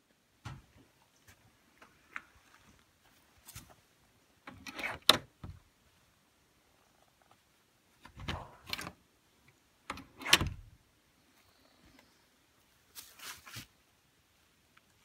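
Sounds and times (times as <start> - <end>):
door handle and latch clicking: 4.5 - 5.3, 8.1 - 9.0, 9.9 - 10.6.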